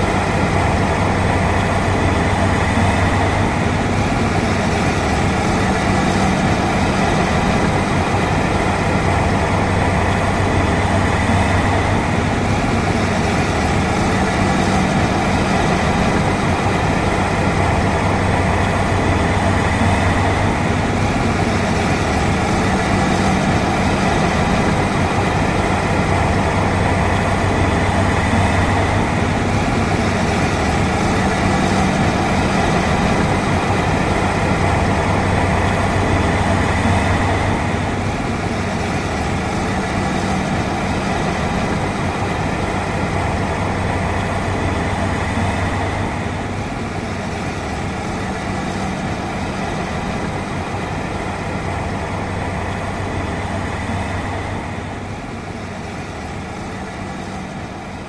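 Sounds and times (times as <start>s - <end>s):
combine harvester engine hum: 0.0s - 58.0s.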